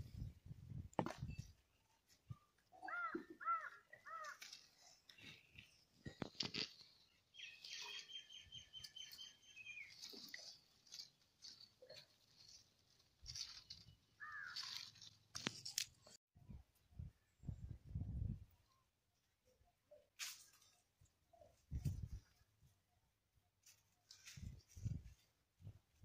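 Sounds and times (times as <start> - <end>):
crow cawing: 2.8 - 4.6, 14.2 - 14.7
twigs crunching and snapping: 2.9 - 16.2.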